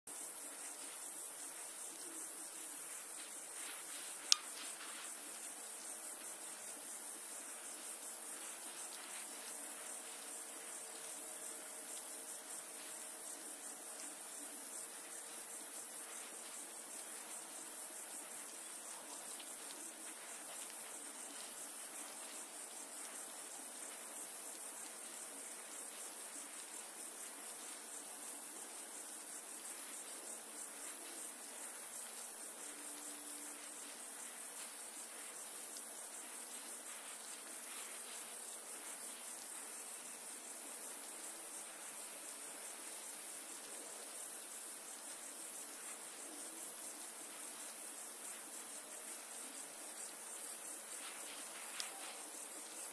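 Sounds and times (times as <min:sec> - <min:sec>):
high-pitched insect trilling: 0:00.1 - 0:52.9
low hiss: 0:00.1 - 0:52.9
sharp click: 0:04.3 - 0:04.6.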